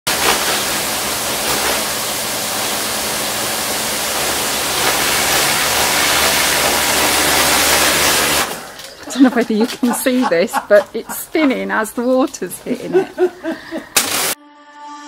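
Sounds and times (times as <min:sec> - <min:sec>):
pressure washer jet hissing: 0:00.0 - 0:11.4, 0:12.0 - 0:14.4
low motor hum: 0:00.4 - 0:13.5.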